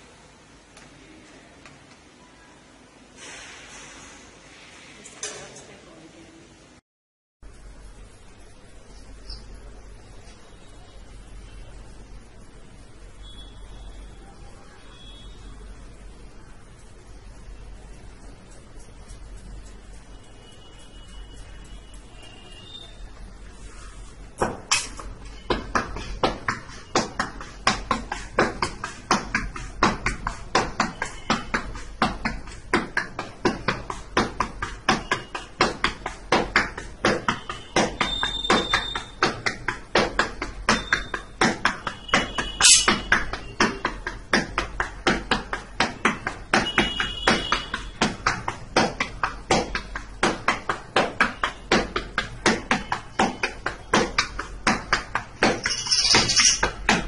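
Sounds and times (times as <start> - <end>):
hissing rustle: 3.2 - 5.2
palm slapping dough: 24.3 - 55.7, 56.6 - 57.0.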